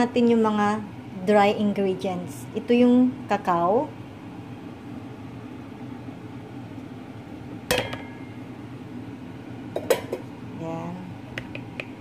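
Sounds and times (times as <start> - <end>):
low room hum: 0.0 - 12.0
metal bowl clinking on sieve: 7.7 - 8.2.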